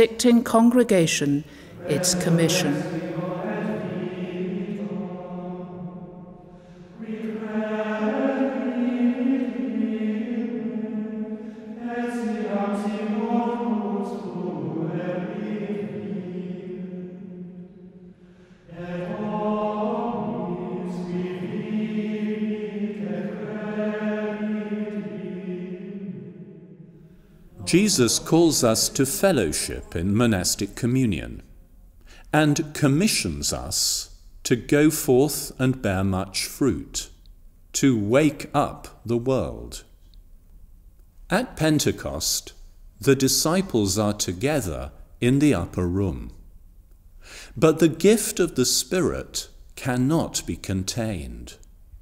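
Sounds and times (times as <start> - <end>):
unaccompanied monastic chant: 1.6 - 31.5.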